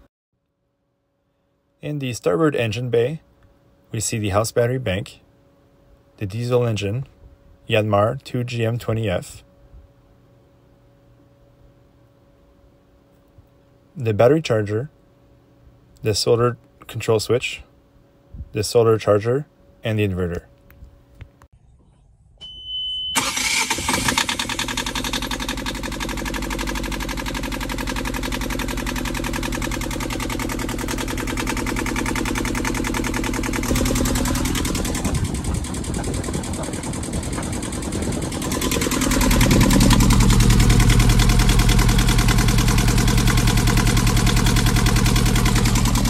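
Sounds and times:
diesel engine idling: 0:23.2 - 0:46.0.

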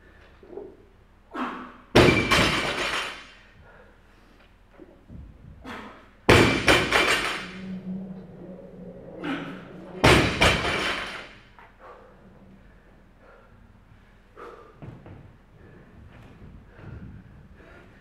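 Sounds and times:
weight plates rattling: 0:06.3 - 0:12.9.

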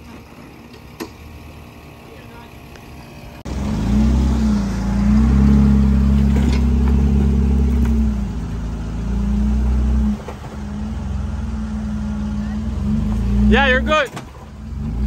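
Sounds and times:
engine revving under load: 0:03.4 - 0:15.0.

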